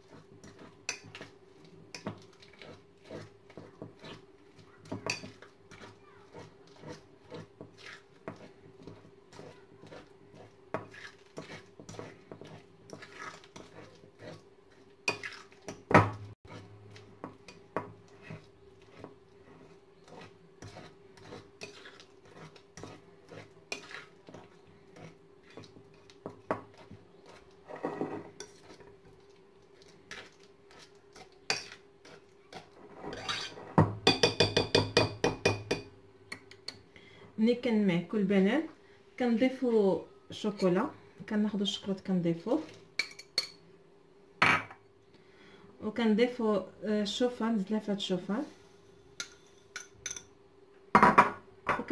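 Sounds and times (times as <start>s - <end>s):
bananas mashed in glass bowl: 0.0s - 27.6s, 28.3s - 36.7s.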